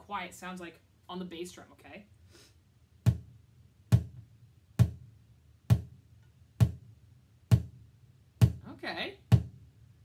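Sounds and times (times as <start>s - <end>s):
bucket drum thuds: 3.0s - 4.2s, 4.8s - 6.0s, 6.6s - 6.9s, 7.5s - 7.8s, 8.4s - 9.6s.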